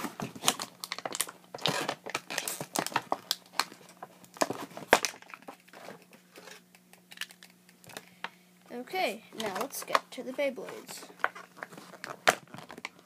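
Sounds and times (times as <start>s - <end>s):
plastic packaging crinkling and tearing: 0.2s - 8.0s, 11.1s - 13.0s.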